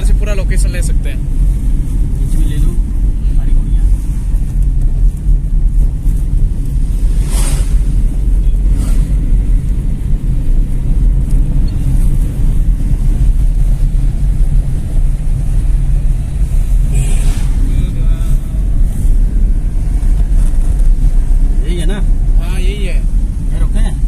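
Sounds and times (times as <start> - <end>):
car engine and road rumble: 0.0 - 24.0
wind buffeting microphone: 3.8 - 22.4
brief whoosh: 6.8 - 9.6, 16.6 - 19.0.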